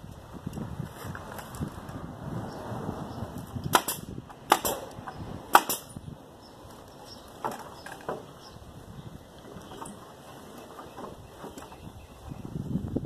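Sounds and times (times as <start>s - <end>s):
nail gun shots: 3.7s - 6.0s.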